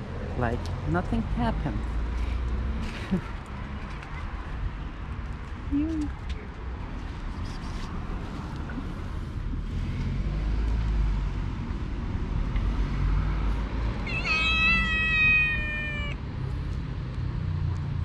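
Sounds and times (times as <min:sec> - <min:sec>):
low traffic rumble: 0:00.0 - 0:18.0
cat meowing: 0:14.0 - 0:16.2.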